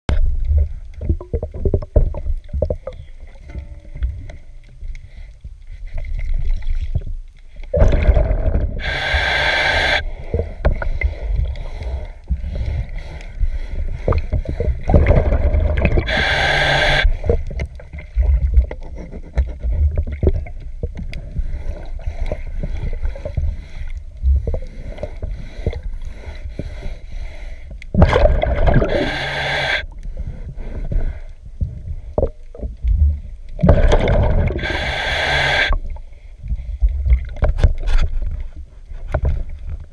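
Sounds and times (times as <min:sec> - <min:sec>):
regulator bubbles gurgling: 0:00.1 - 0:04.4, 0:07.6 - 0:11.6, 0:13.9 - 0:18.8, 0:27.9 - 0:30.0, 0:31.7 - 0:36.0
underwater scrubbing rumble: 0:00.1 - 0:39.9.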